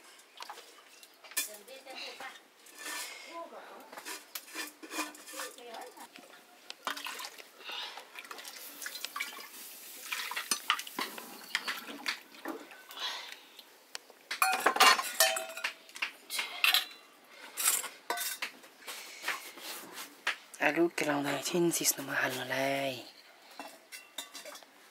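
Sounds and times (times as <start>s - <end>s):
metal pots and utensils clattering: 0.0s - 1.7s, 2.6s - 3.3s, 4.0s - 7.4s, 8.2s - 13.0s, 14.3s - 19.4s, 21.1s - 24.9s
water poured onto metal lid: 8.2s - 12.3s.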